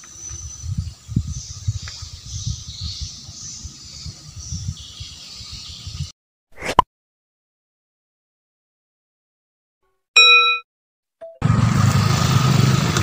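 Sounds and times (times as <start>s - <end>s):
low rumbling on microphone: 0.3s - 6.1s
short swoosh: 6.6s - 6.8s.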